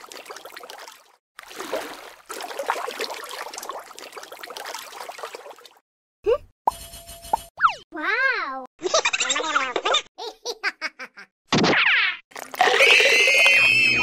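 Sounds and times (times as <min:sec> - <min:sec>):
water trickling and sloshing: 0:00.0 - 0:05.8, 0:12.3 - 0:13.0
rising cartoon whistle effect: 0:13.0 - 0:14.0.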